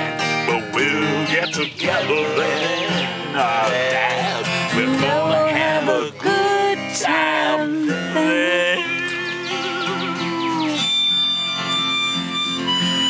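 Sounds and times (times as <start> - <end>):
acoustic guitar strumming: 0.0 - 13.0
men singing folk-rock song: 0.4 - 10.8.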